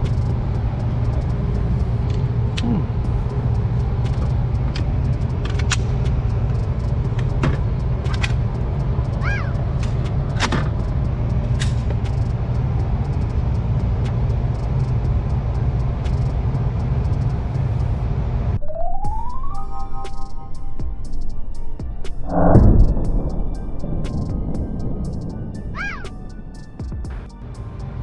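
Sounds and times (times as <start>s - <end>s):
low rumble of shooting range: 21.8s - 27.7s.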